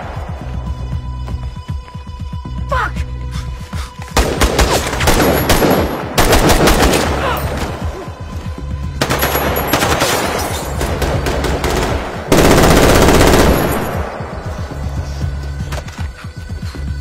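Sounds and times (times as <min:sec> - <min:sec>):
automatic rifle fire echoing: 0:04.2 - 0:07.2, 0:09.0 - 0:14.2.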